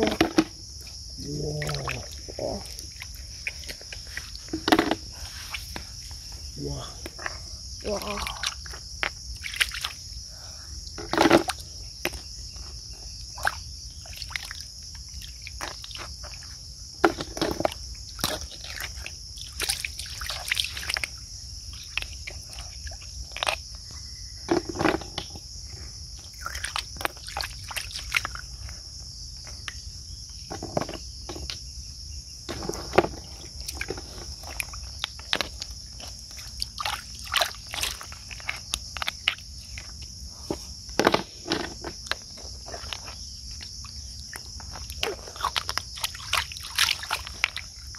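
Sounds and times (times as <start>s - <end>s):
hands splashing in shallow water: 9.4s - 10.0s, 36.3s - 39.4s, 45.0s - 47.9s.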